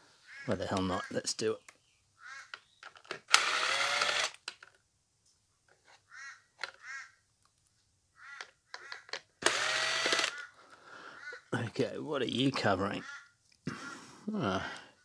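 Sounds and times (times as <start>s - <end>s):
cordless drill whining: 3.2s - 4.4s, 9.4s - 10.4s.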